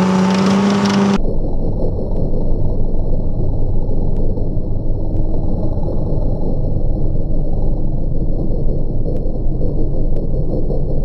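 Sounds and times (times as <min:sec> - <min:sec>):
tracked vehicle rumbling: 0:00.0 - 0:01.2.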